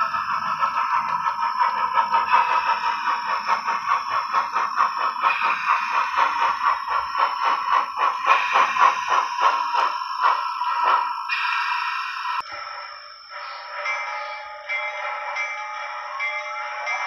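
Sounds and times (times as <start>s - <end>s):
tinny steam chuffs from speaker: 1.7s - 14.5s.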